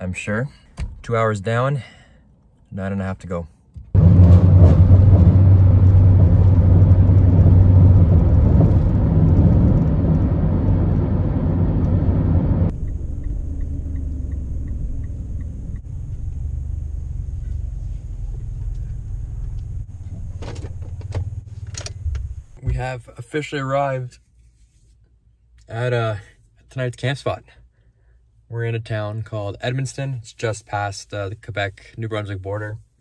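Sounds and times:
road and engine noise in car: 3.9s - 22.6s
low rumble of slow driving: 4.0s - 22.6s
light even ticking: 12.7s - 16.0s.

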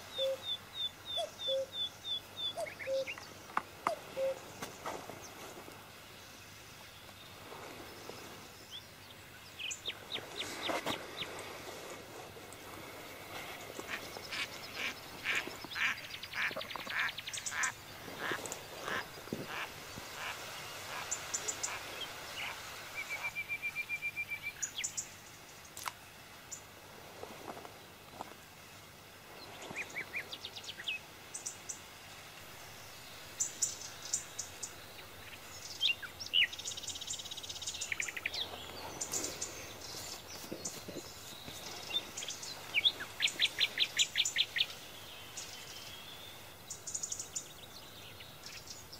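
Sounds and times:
birds chirping and trilling: 0.0s - 5.4s, 13.3s - 25.1s, 32.9s - 48.9s.

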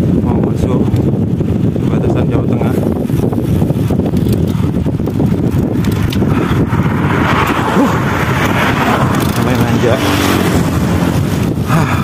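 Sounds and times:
wind rumbling on microphone: 0.0s - 12.0s
road noise hiss: 2.6s - 12.0s.

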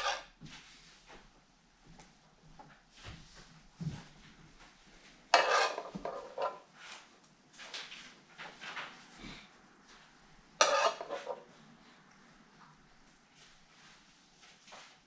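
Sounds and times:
metal spatula scraping skillet: 0.0s - 0.4s, 5.3s - 6.7s, 10.6s - 11.5s
spatula tapping: 5.3s - 6.6s, 10.6s - 11.4s.

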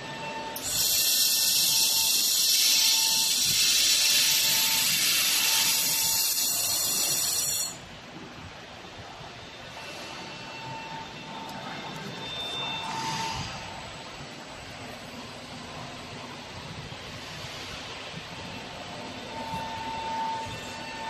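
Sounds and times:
laser welding hiss: 0.6s - 7.8s.

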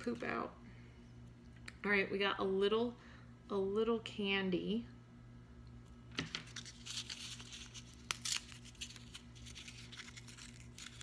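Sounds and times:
wrapper crinkling and tearing: 6.3s - 11.0s.

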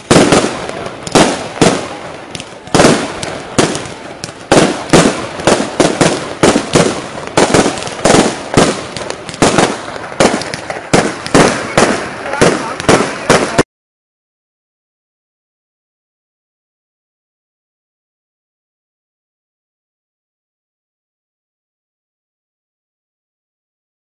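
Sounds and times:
fireworks bangs: 0.0s - 13.7s.

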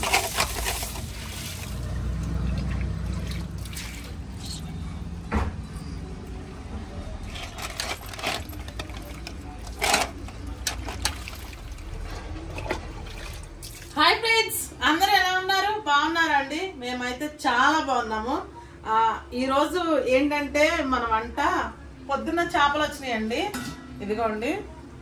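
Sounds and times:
water sloshing and trickling: 0.0s - 4.8s, 7.2s - 14.0s.

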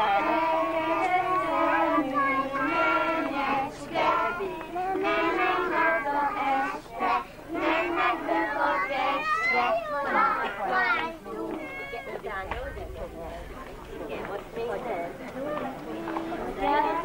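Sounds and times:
children singing: 0.0s - 11.8s.

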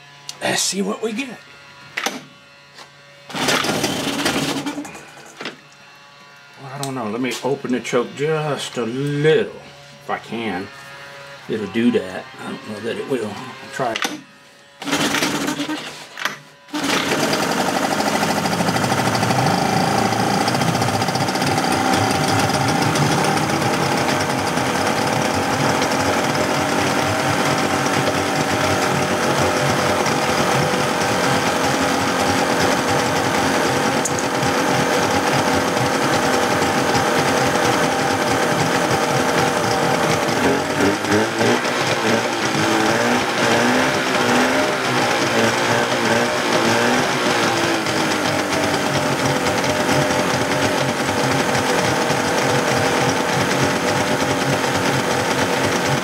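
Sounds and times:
outboard motor pull-starting and running: 3.2s - 5.6s, 14.8s - 56.0s.

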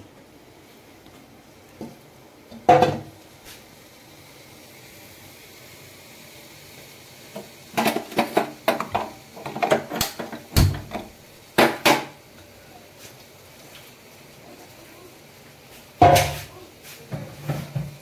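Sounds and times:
utensils clanking against a pan: 7.8s - 12.2s, 16.0s - 16.5s.

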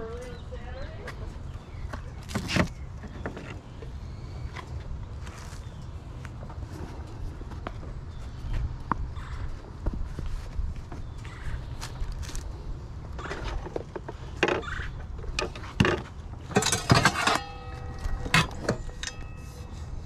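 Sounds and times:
metal pan clinking and ringing: 16.6s - 19.7s.

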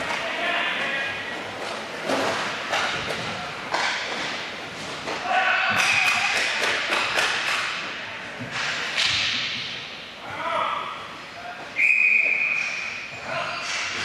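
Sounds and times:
hockey knocks echoing: 0.0s - 9.8s.

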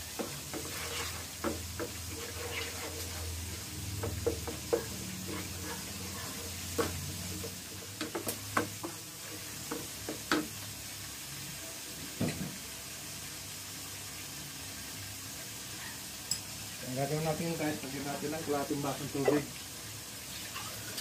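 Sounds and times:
sauce sizzling in frying pan: 0.0s - 21.0s
wooden spatula knocking on pan: 1.4s - 2.1s, 3.9s - 5.4s, 6.7s - 10.5s.

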